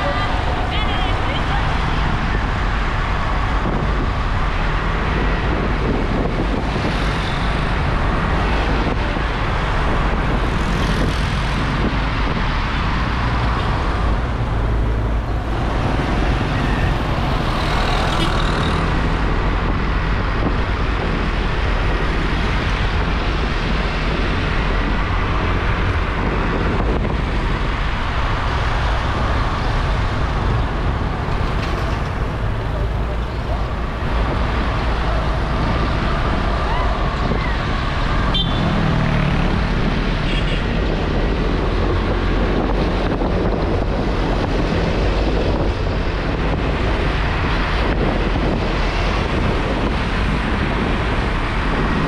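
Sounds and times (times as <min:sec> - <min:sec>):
other motorbikes and cars: 0:00.0 - 0:52.0
road and wind noise: 0:00.0 - 0:52.0.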